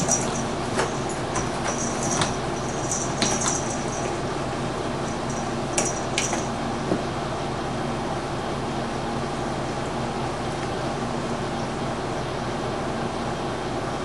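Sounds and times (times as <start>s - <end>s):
cat toy clicking and rattling: 0.0s - 4.1s, 5.3s - 6.5s.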